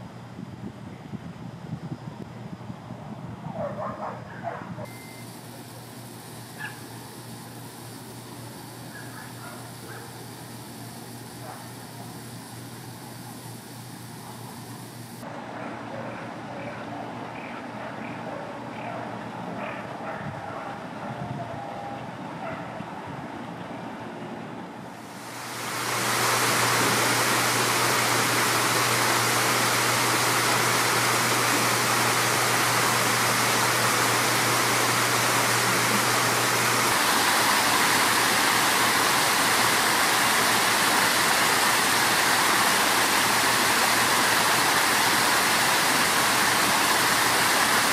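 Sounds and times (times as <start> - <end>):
water splashing from a fountain: 5.3 - 15.2, 25.0 - 47.9.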